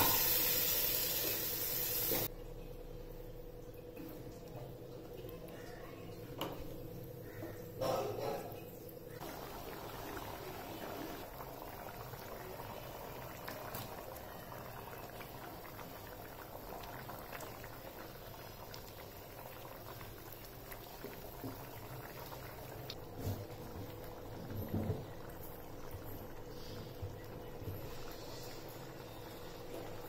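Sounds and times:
thick gravy bubbling and popping: 11.2s - 28.0s.

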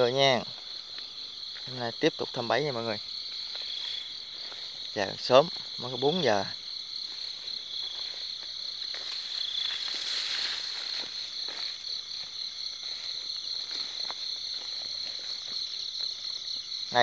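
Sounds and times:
rustling in grass: 0.0s - 16.5s
footsteps through grass: 0.0s - 17.0s
night insects trilling: 0.0s - 17.0s.

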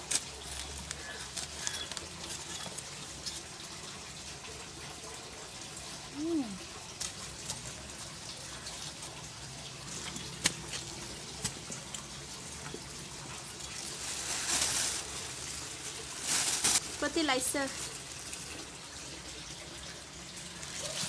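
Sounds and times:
small clicks and crumbling grit: 0.0s - 3.4s.

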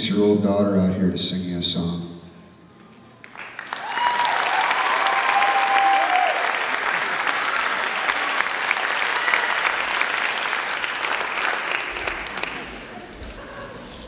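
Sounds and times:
audience applauding: 3.2s - 13.6s
cheers: 3.4s - 12.6s.

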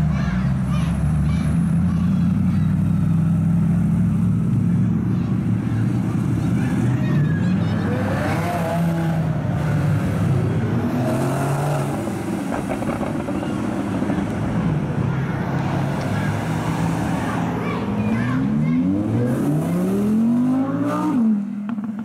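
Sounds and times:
sports cars driving past: 0.0s - 22.0s.

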